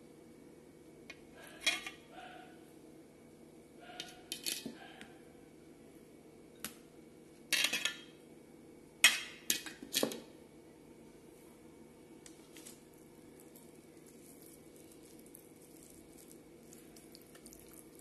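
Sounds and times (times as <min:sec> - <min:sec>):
clinks and scrapes on steel plate: 0:01.6 - 0:02.0.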